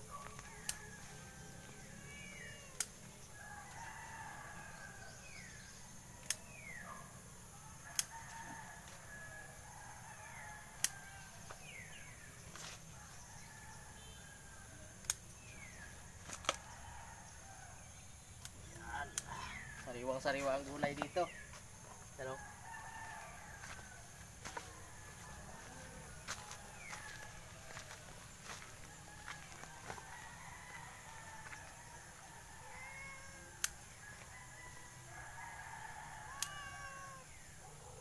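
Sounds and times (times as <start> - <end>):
plant shoots snapping: 6.2 - 6.4, 15.0 - 15.3, 18.4 - 19.4, 36.4 - 36.6
falling bird calls: 18.3 - 21.6, 35.5 - 38.0.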